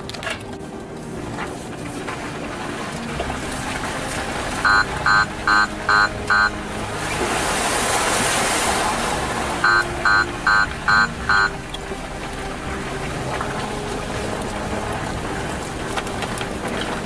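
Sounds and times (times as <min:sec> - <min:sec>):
short electronic beeps: 0:04.7 - 0:06.6, 0:09.6 - 0:11.6
engine and tyre rumble: 0:11.5 - 0:17.0.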